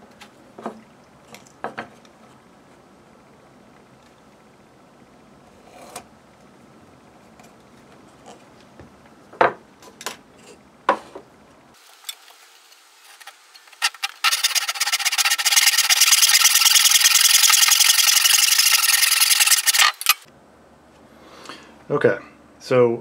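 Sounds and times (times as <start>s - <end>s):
hand saw cutting wood: 13.1s - 20.3s.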